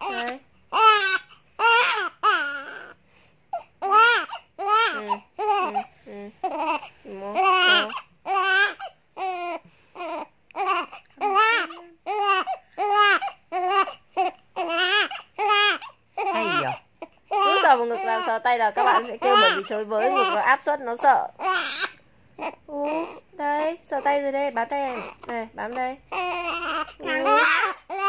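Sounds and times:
newborn baby crying: 0.0s - 28.0s.

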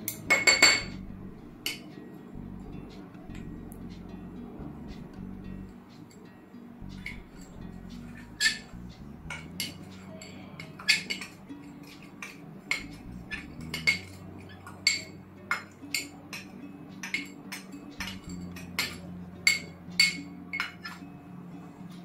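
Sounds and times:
metal spoon clinking cup: 0.1s - 0.9s, 9.3s - 21.0s.

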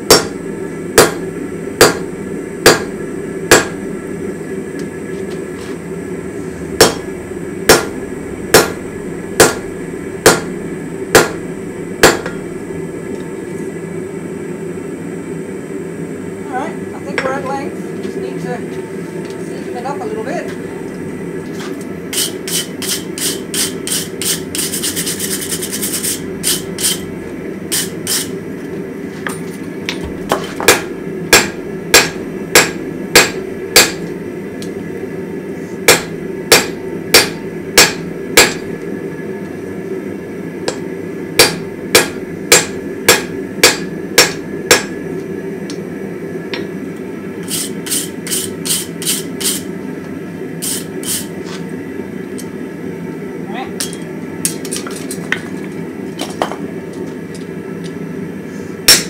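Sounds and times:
hammer striking steel on anvil: 0.1s - 0.4s, 1.0s - 1.2s, 1.8s - 2.9s, 3.5s - 3.8s, 6.8s - 7.1s, 7.7s - 8.8s, 9.4s - 10.5s, 11.1s - 11.4s, 12.0s - 12.4s, 22.2s - 24.4s, 27.7s - 28.3s, 29.3s - 34.1s, 35.9s - 38.7s, 41.4s - 45.0s
wire brush scraping steel: 22.1s - 27.1s, 27.7s - 28.3s, 47.4s - 49.7s, 50.6s - 51.3s.

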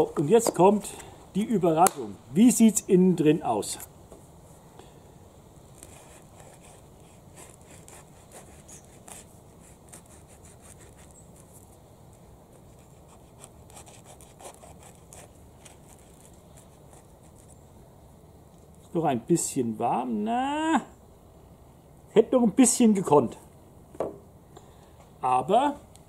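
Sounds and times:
knife sawing through bread crust: 5.8s - 11.5s, 12.5s - 17.5s.

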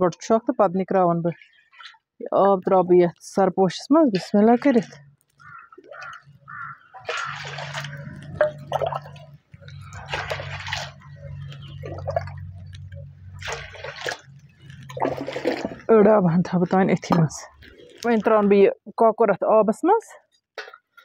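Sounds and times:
water dripping: 0.0s - 18.6s
water splashing into steel basin: 4.0s - 16.0s.

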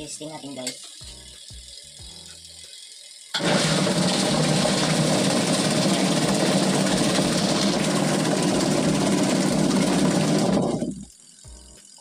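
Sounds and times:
washing machine motor running: 3.3s - 12.0s.

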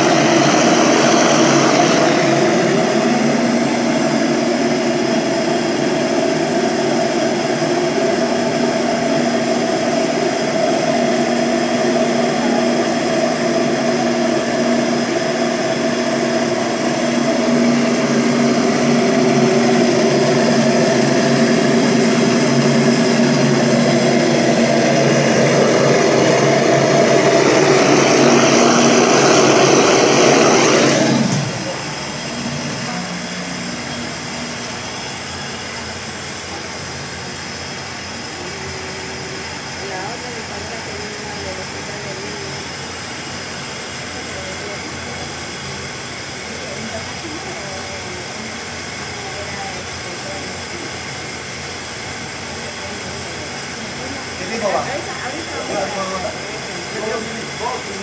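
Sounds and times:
industrial blender motor hum: 0.0s - 58.0s.

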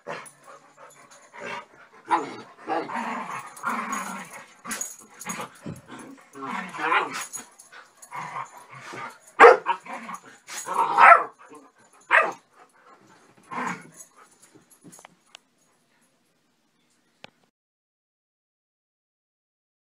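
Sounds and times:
dogs barking and yipping: 0.0s - 15.4s.

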